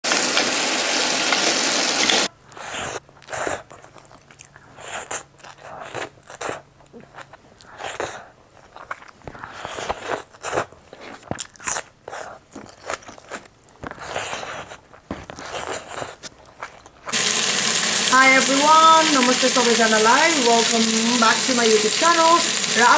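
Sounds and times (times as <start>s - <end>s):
meat sizzling in oil: 0.1s - 2.3s, 17.1s - 22.9s
chewing and crunching: 2.5s - 17.2s.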